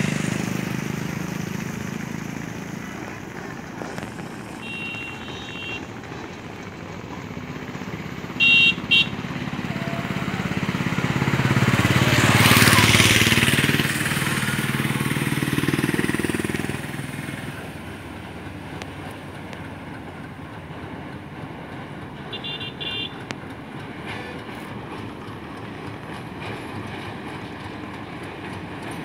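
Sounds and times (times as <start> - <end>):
vehicle passing close by: 0.0 - 19.1.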